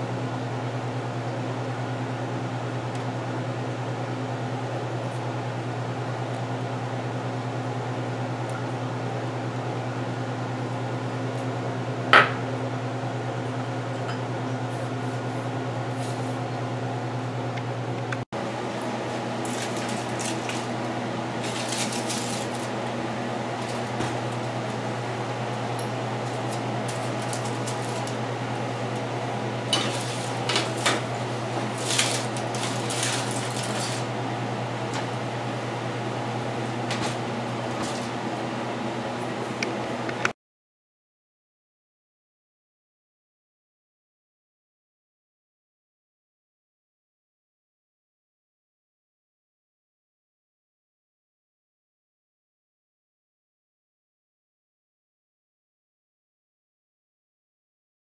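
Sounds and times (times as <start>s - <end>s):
baking tray clattering: 19.4s - 22.8s, 29.6s - 34.2s.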